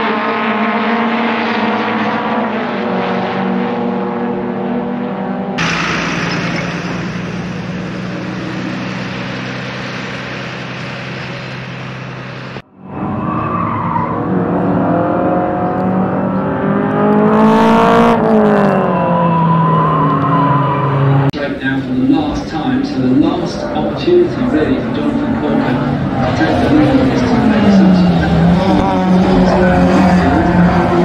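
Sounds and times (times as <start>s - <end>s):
racing cars accelerating past: 0.0s - 21.3s, 22.3s - 31.0s
steady engine drone with hiss: 5.6s - 12.6s.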